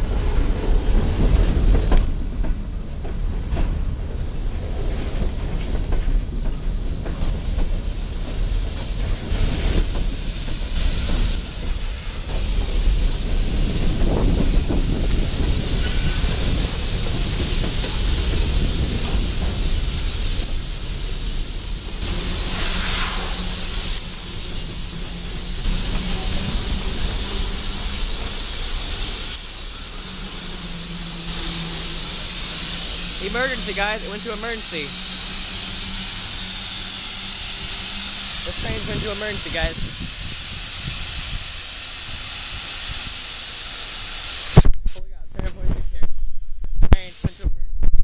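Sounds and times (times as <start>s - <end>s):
train cars rumbling on rails: 0.0s - 44.5s
air brakes hissing: 8.7s - 44.6s.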